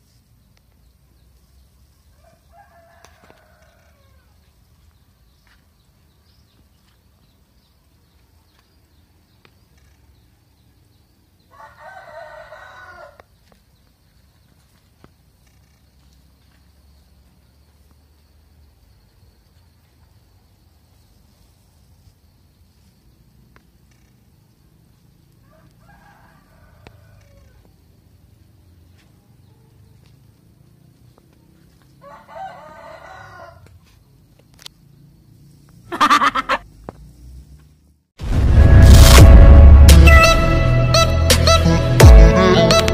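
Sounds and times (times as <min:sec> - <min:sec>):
rooster crowing: 0:02.1 - 0:04.4, 0:11.5 - 0:13.3, 0:25.4 - 0:27.7, 0:32.0 - 0:33.7, 0:35.9 - 0:36.6.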